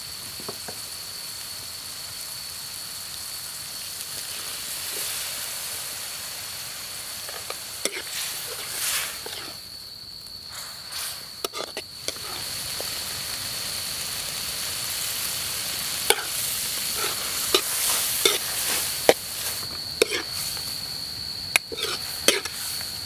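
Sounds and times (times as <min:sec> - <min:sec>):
stems sizzling in a wok: 0:00.0 - 0:23.0
metal ladle scraping a wok: 0:07.3 - 0:09.6, 0:10.5 - 0:12.5, 0:16.1 - 0:20.6, 0:21.6 - 0:22.8.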